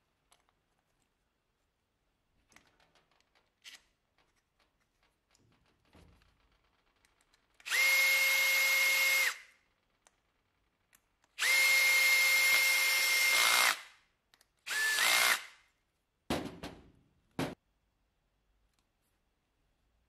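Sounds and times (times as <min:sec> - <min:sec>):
cordless drill motor whine: 0:07.7 - 0:09.4, 0:11.4 - 0:13.8, 0:14.7 - 0:15.4.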